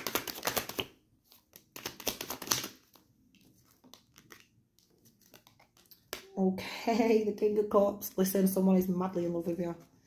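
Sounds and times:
cards being shuffled: 0.0 - 6.3.

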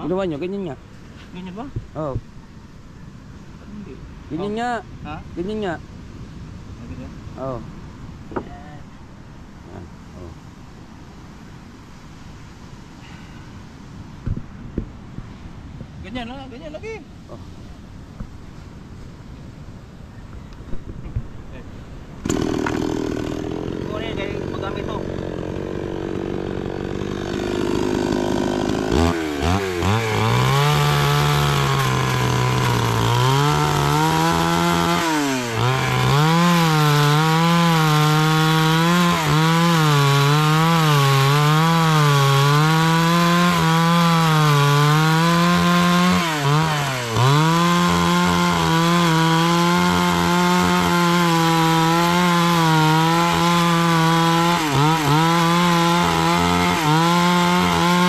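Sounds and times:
chainsaw cutting wood: 22.2 - 58.0.

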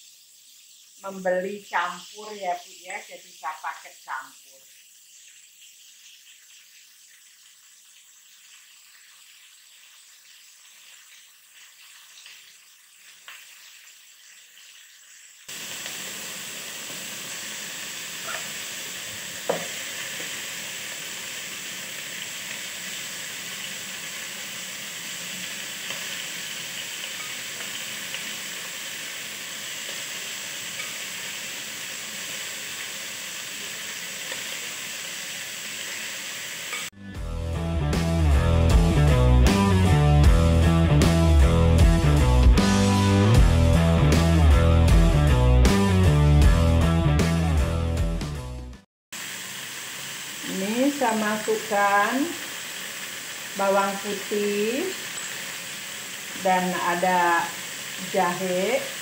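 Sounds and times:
meat sizzling in oil: 0.0 - 47.5, 49.1 - 59.0
utensil knocking on pan: 19.5 - 19.8.

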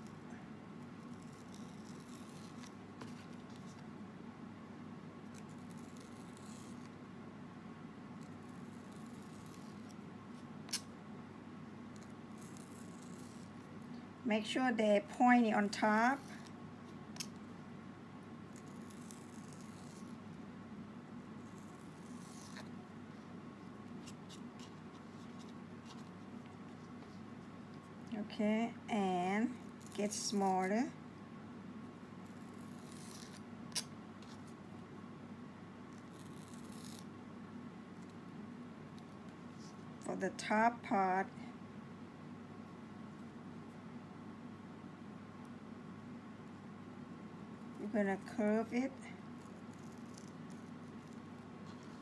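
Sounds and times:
steady low hum: 0.0 - 52.0.

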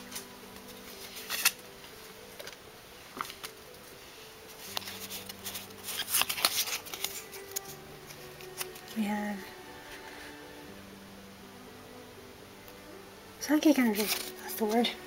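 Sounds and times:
trading cards rustling: 0.0 - 1.6, 4.5 - 9.1, 13.8 - 15.0
cards clicking: 1.1 - 1.6, 4.7 - 8.9.

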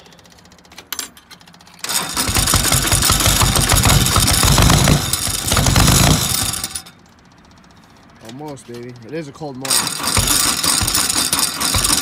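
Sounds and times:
diesel engine cranking: 0.0 - 12.0.

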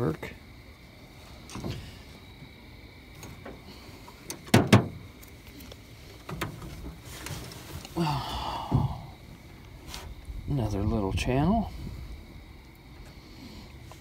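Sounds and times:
knocks on aluminum boat: 4.5 - 5.0.

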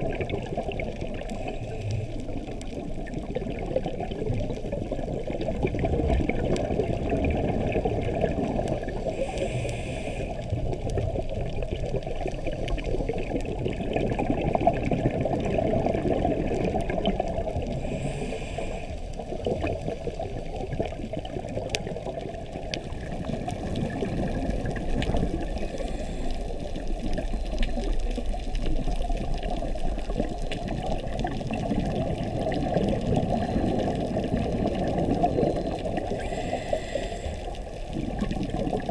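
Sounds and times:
underwater bubbling of exhaled air: 0.0 - 38.9
regulator hiss: 17.8 - 19.0, 36.1 - 37.5.

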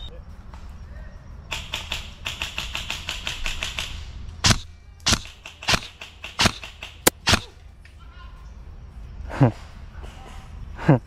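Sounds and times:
airsoft rifle automatic fire: 1.5 - 7.5
airsoft single shot cracks: 1.5 - 7.5.

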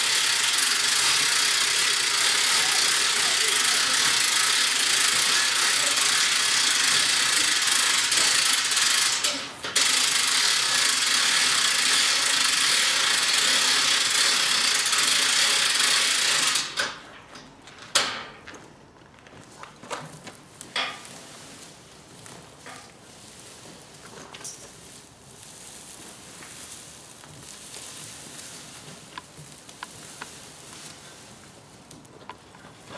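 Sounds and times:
hand winch ratchet clicking: 0.0 - 17.0.

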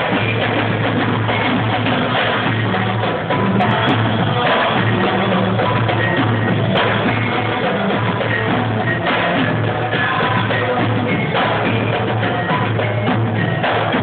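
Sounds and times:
hand drums playing: 0.0 - 14.0.

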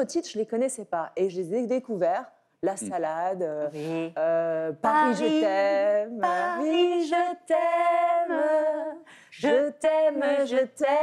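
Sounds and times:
woman singing a cappella: 2.8 - 11.0
short breaths: 9.0 - 9.4.

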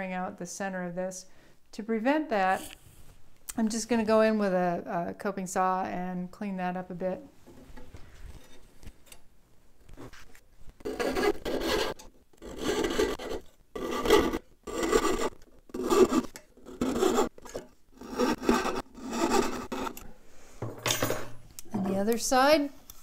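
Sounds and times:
coping saw rasping through wood: 10.8 - 20.0.

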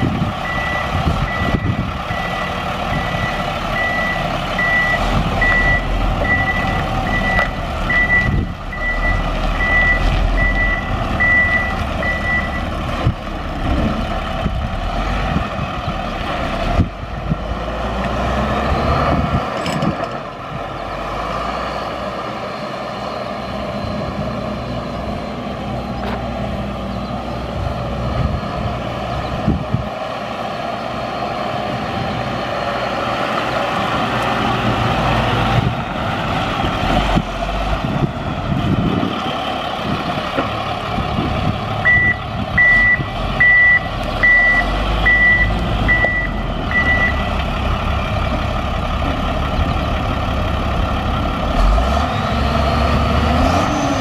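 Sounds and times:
tow truck engine: 0.0 - 54.0
reverse alarm beeping: 0.4 - 12.7, 41.8 - 47.3.

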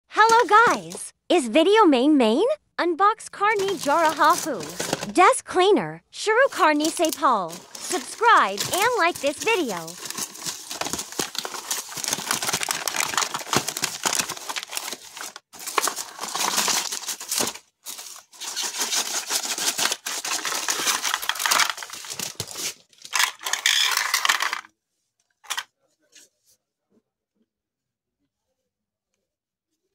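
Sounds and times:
packaging crinkling and rustling: 0.3 - 1.0, 3.6 - 5.1, 6.5 - 24.7.

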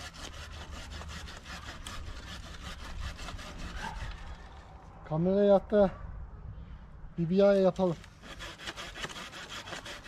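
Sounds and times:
hand saw cutting branch: 0.0 - 4.5, 7.8 - 10.0.

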